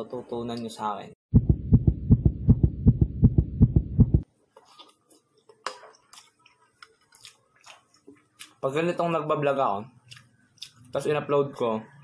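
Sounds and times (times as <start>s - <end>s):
fast run of low thuds: 1.3s - 4.2s.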